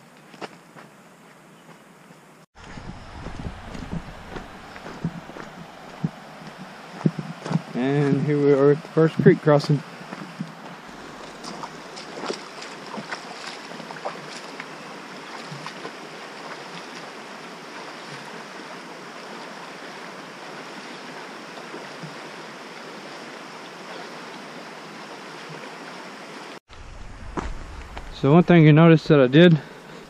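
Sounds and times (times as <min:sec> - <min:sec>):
creek water rushing over rocks: 0:02.6 - 0:26.6
wading splashes: 0:02.6 - 0:26.6.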